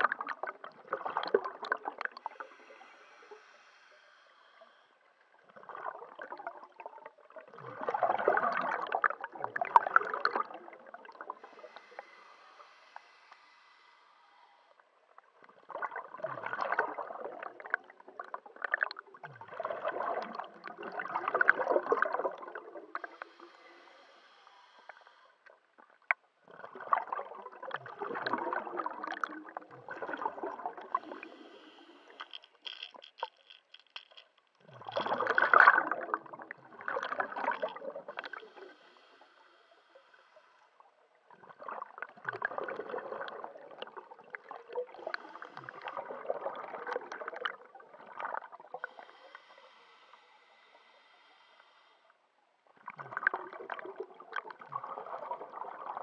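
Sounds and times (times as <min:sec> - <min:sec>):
exhaled bubbles gurgling: 0:00.0 - 0:03.6, 0:04.2 - 0:12.8, 0:14.8 - 0:23.8, 0:25.5 - 0:33.5, 0:34.6 - 0:49.6, 0:52.6 - 0:56.0
regulator hissing inhalations: 0:02.0 - 0:05.5, 0:11.2 - 0:15.1, 0:22.9 - 0:25.6, 0:30.8 - 0:34.4, 0:37.2 - 0:41.1, 0:45.0 - 0:46.2, 0:48.7 - 0:52.4.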